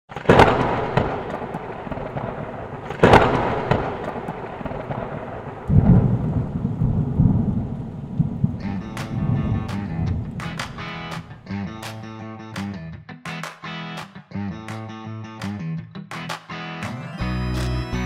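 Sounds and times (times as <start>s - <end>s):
sharp thunderclap: 0.1s - 11.4s
low rolling thunder: 0.2s - 10.8s
steady rain: 0.3s - 11.4s.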